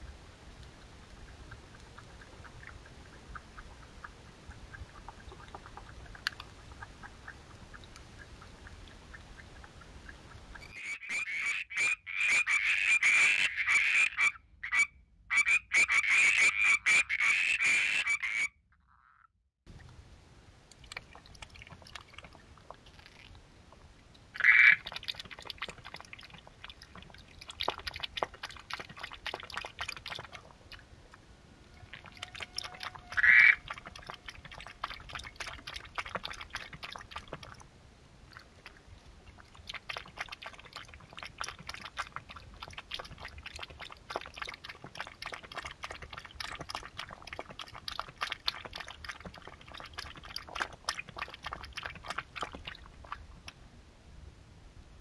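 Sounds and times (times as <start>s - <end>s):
animal calls: 31.7s - 34.0s.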